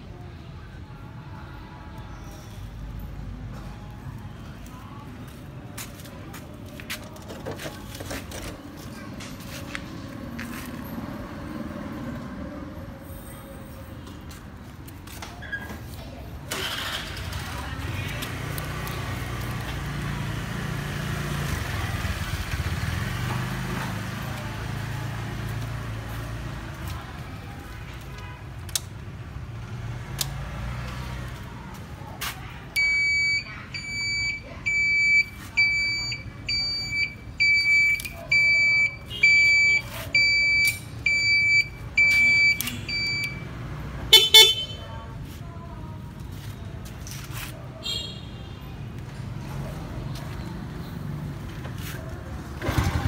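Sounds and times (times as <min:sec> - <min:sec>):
horn honk: 0:44.1 - 0:44.9
motorcycle engine idling: 0:52.2 - 0:53.0.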